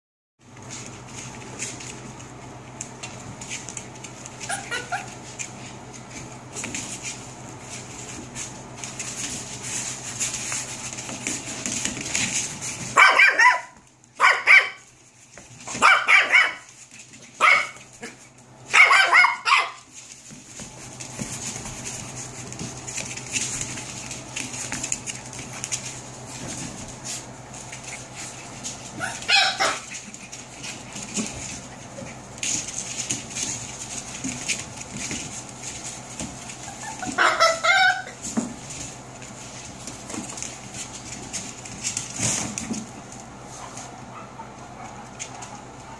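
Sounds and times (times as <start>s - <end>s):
puppy barking: 4.4s - 5.2s, 12.9s - 14.9s, 15.7s - 16.7s, 17.4s - 19.9s, 29.0s - 29.9s, 36.7s - 38.2s, 43.6s - 45.9s.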